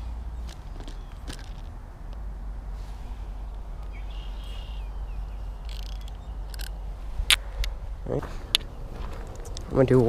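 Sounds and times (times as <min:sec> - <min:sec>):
wind buffeting the microphone: 0:00.0 - 0:10.0
high chirp: 0:03.8 - 0:06.9.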